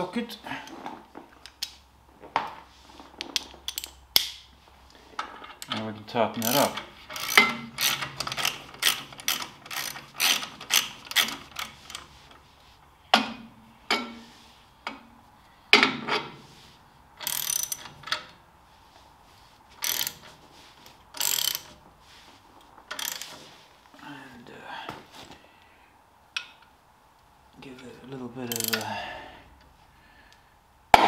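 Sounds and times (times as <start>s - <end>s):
socket ratchet clicking: 6.4s - 12.0s, 17.2s - 17.9s, 19.8s - 20.2s, 21.2s - 21.7s, 22.9s - 23.3s, 28.5s - 28.9s.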